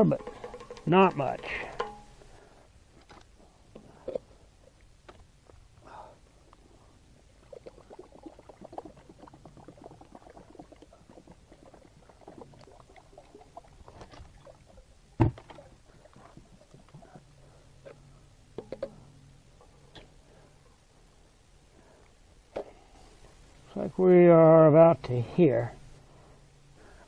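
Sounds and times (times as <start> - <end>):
fluid pouring through funnel: 0.2 - 2.0, 7.4 - 14.8.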